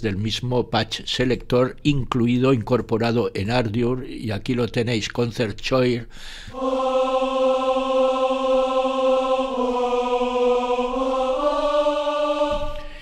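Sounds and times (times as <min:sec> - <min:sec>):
synthesized choir tone: 0:06.5 - 0:13.0.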